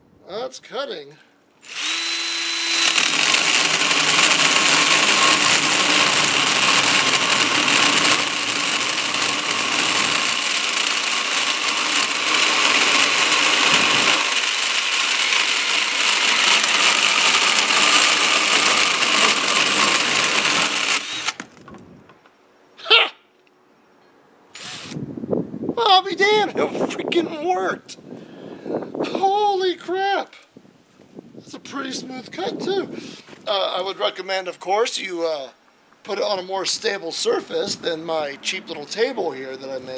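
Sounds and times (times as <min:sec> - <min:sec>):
drill chainsaw cutting wood: 0:01.6 - 0:21.5, 0:24.6 - 0:25.0.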